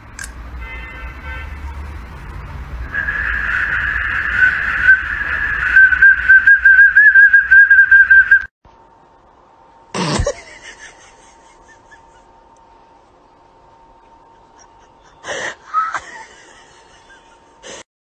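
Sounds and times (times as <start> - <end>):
toy pea whistle shrilling: 2.9 - 8.4.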